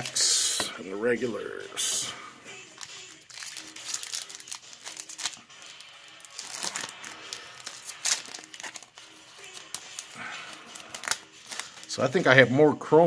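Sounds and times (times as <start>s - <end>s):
foil wrapper crinkling: 2.8s - 12.4s.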